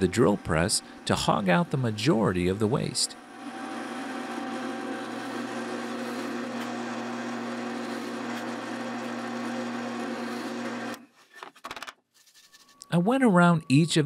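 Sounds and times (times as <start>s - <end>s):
drill press boring into wood: 0.0s - 11.0s.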